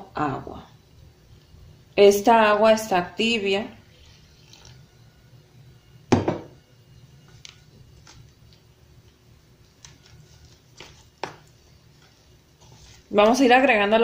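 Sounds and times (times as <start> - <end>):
hand mixing dough in plastic container: 7.0 - 14.0.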